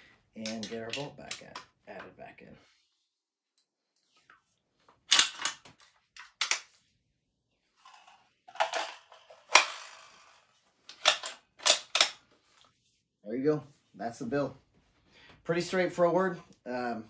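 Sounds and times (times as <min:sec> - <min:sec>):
rifle bolt clacking: 0:05.1 - 0:05.7, 0:10.9 - 0:12.2.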